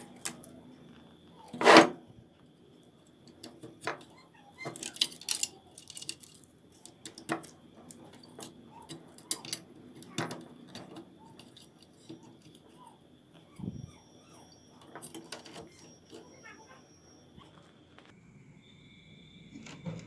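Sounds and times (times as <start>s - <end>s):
circuit boards clicking and rattling: 3.2s - 12.8s.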